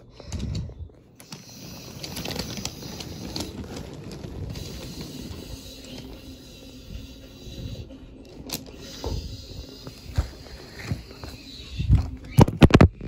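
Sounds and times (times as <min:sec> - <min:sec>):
toy train wheels rolling on track: 0:00.0 - 0:12.4.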